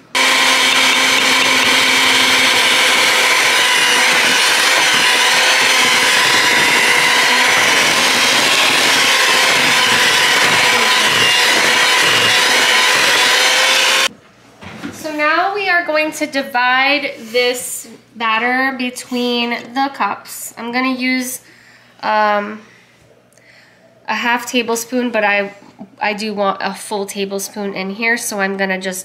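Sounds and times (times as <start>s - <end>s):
electric hand mixer whirring: 0.0s - 14.1s.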